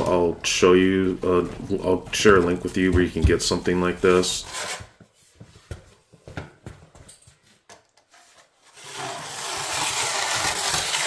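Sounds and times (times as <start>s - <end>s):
power drill mixing compound: 8.8s - 11.0s.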